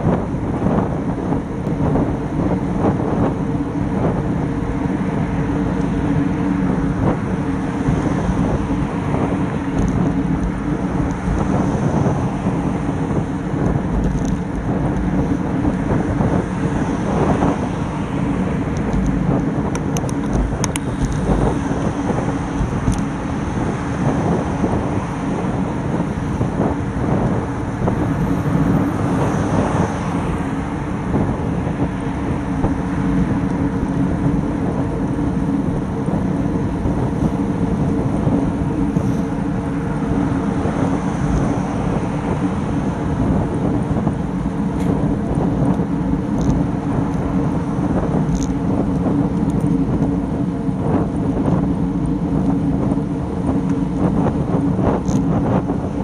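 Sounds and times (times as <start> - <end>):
low hum: 0.0 - 56.0
wind rush on bike camera: 0.0 - 56.0.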